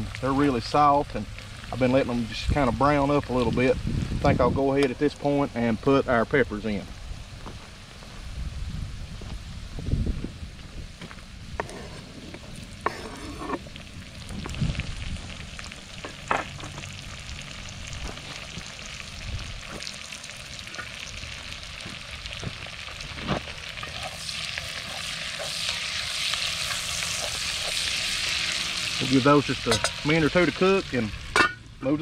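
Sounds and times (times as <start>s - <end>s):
food sizzling in a pot: 0.0s - 4.2s, 11.6s - 31.9s
scraping off a cutting board: 11.6s - 13.6s.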